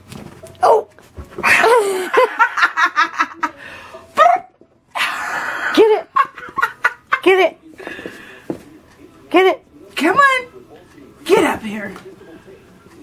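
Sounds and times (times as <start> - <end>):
person laughing: 1.5 - 3.6.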